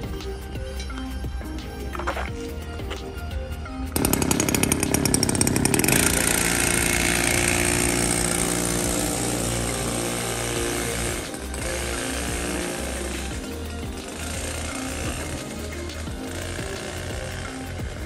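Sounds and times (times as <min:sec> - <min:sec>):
small two-stroke engine running: 0:03.9 - 0:18.0.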